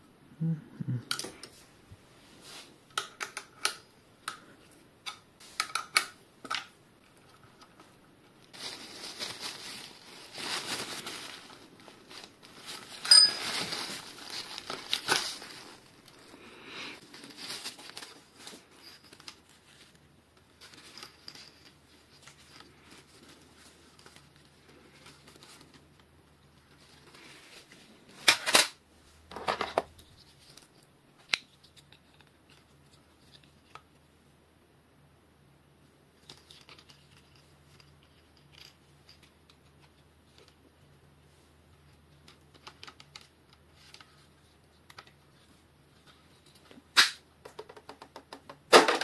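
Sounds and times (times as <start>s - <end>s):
rustling and scraping: 1.5s - 2.8s, 7.0s - 33.8s.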